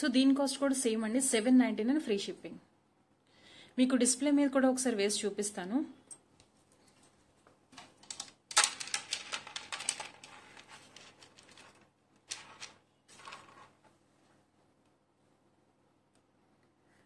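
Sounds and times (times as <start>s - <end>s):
bead necklace clicking and rattling: 7.8s - 13.6s.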